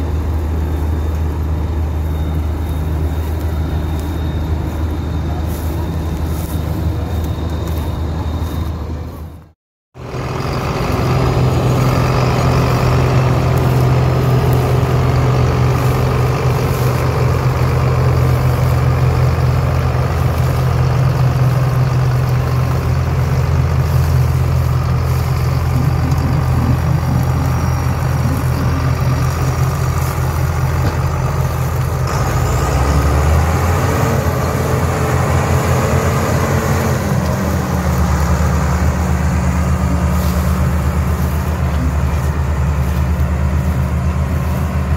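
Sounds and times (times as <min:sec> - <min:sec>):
faint high whine: 0:00.0 - 0:09.5
tractor diesel engine running: 0:00.0 - 0:44.9.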